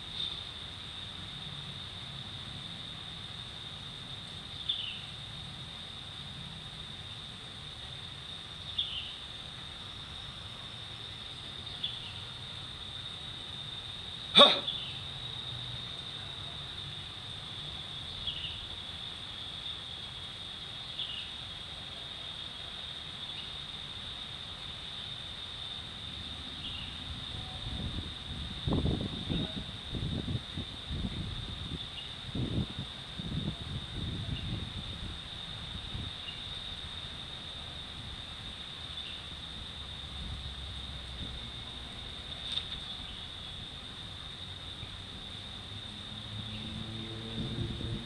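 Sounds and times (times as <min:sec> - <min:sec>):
insects droning: 0:00.0 - 0:48.0
low outdoor rumble: 0:00.0 - 0:48.0
wind buffeting microphone: 0:27.1 - 0:36.2, 0:47.2 - 0:48.0.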